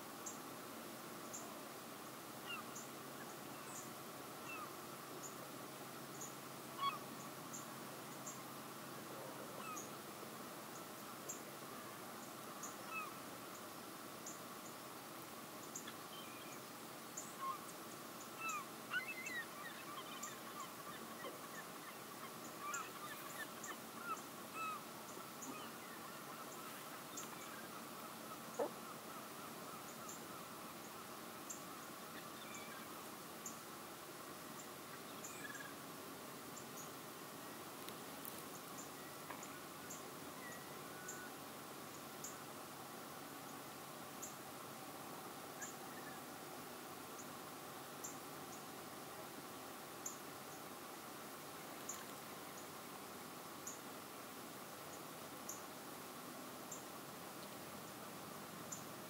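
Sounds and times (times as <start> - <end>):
soft hiss: 0.0 - 59.0
gliding bird calls: 6.8 - 7.1, 18.4 - 30.2
birds chirping: 17.2 - 33.6.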